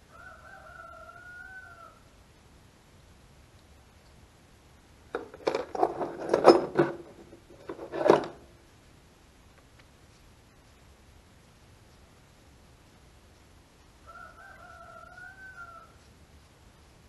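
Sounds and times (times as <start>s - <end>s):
small metallic clicks and knocks: 5.1s - 8.5s.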